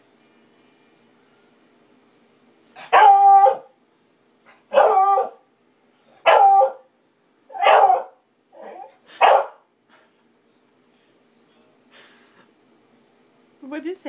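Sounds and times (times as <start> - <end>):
dog baying: 2.8 - 3.7, 4.7 - 5.4, 6.2 - 6.9, 7.5 - 9.6.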